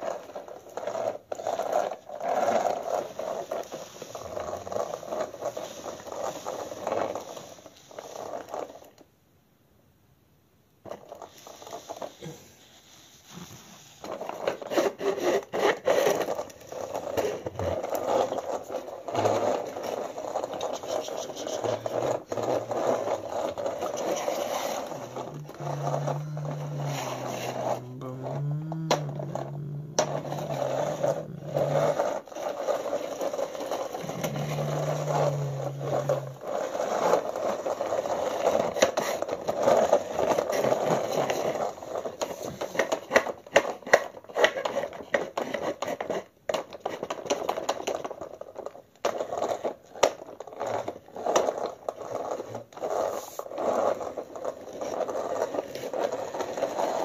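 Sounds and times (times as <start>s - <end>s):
toy car rolling on hard floor: 0.0s - 9.1s, 10.8s - 57.0s
low steady hum: 21.6s - 32.2s, 33.9s - 36.6s.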